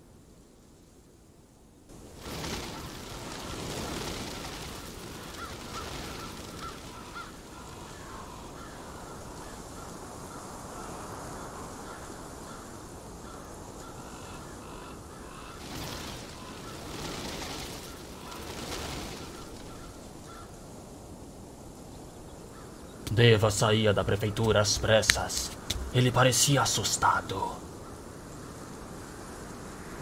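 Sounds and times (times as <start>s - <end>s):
wind-like rushing: 1.9s - 14.0s, 15.1s - 21.9s, 22.7s - 30.0s
crows cawing: 2.4s - 20.6s.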